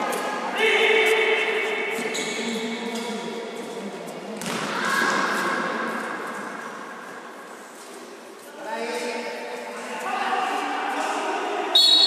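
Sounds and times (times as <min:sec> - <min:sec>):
ball kicked and bouncing indoors: 0:04.3 - 0:05.8.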